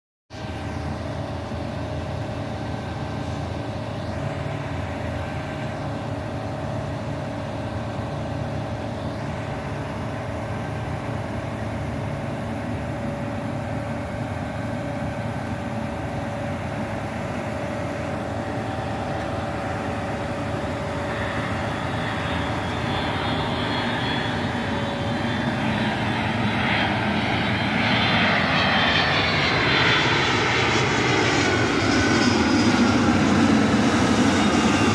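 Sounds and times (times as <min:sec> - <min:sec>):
jet airliner passing overhead: 0:00.3 - 0:34.9
steady hum: 0:00.4 - 0:29.0.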